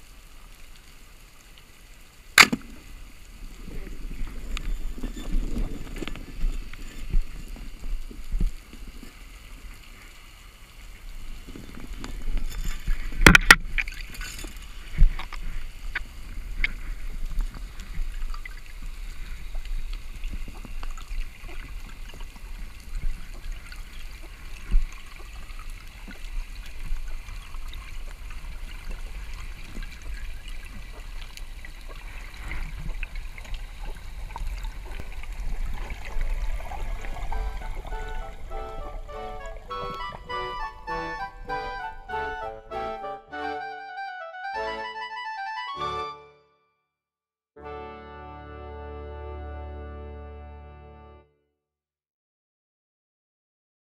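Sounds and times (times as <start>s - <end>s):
underwater water rumble and hiss: 0.0s - 14.0s, 14.7s - 40.4s
small underwater clicks: 11.5s - 38.1s.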